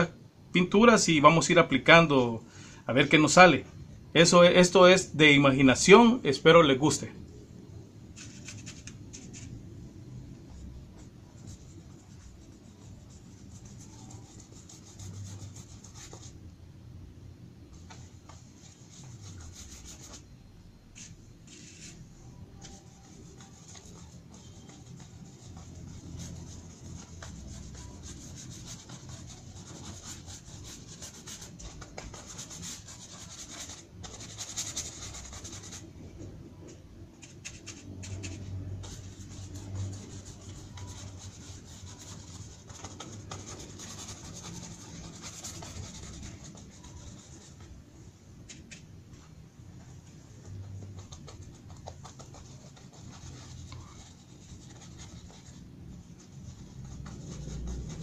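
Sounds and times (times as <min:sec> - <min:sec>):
paintbrush scrubbing on paper: 0:10.5 - 0:16.4, 0:17.7 - 0:20.3, 0:20.9 - 0:35.9, 0:37.2 - 0:47.7, 0:50.2 - 0:58.0.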